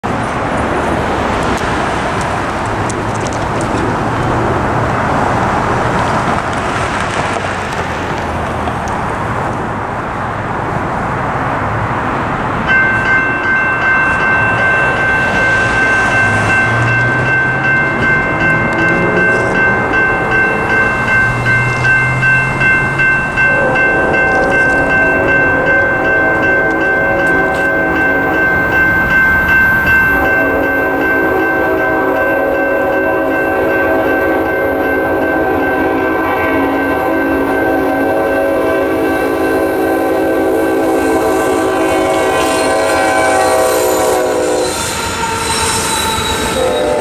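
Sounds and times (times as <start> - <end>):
road traffic passing: 0.0 - 47.0
crossing signal bell ringing: 12.6 - 47.0
train horn: 18.4 - 21.0, 23.1 - 28.6, 30.0 - 47.0.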